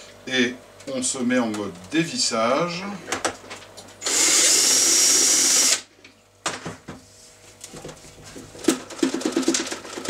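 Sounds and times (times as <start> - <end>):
cordless drill running: 4.0 - 5.9.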